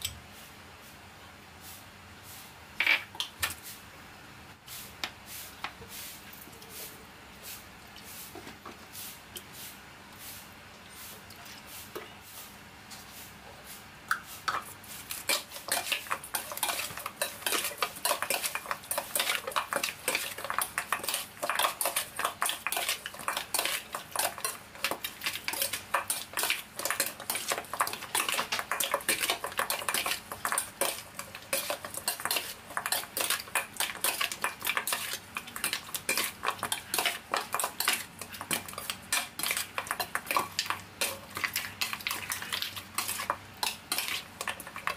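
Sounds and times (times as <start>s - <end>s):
metal spoon scraping metal bowl: 15.2s - 44.9s.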